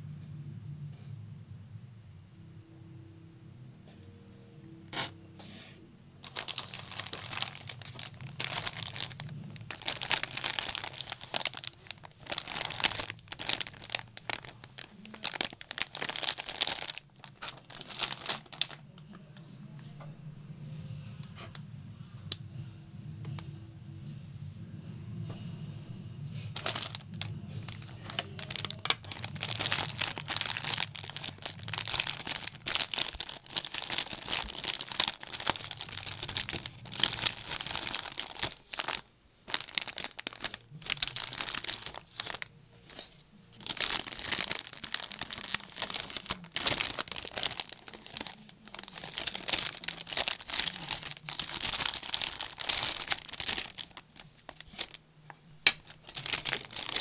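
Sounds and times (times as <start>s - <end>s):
plastic packaging crinkling: 6.2s - 19.0s, 26.5s - 55.0s, 55.6s - 57.0s.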